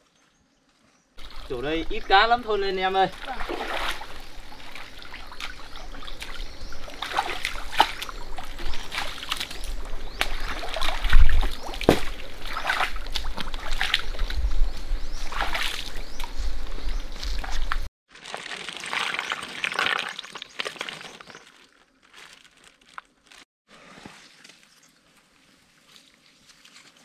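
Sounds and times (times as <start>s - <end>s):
splashing of muddy water: 1.2s - 14.4s, 15.2s - 16.4s, 17.4s - 21.6s.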